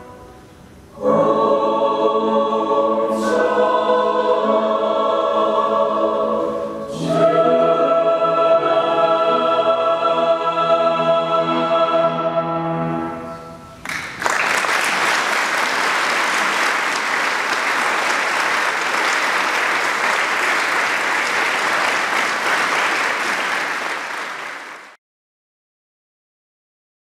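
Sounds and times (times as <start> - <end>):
choir singing with piano: 0.0 - 13.7
audience applause: 13.8 - 25.0.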